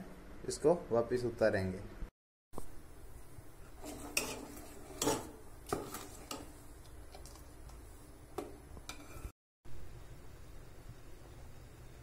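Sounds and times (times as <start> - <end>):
ladle stirring liquid in pot: 3.6 - 9.3
ladle clinking against pot: 3.8 - 6.6.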